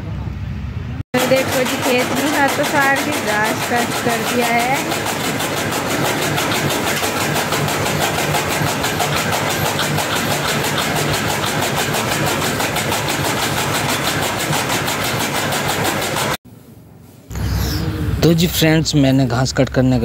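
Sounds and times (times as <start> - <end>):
machine hum: 0.0 - 20.0
chaff cutter blades chopping: 1.1 - 16.4.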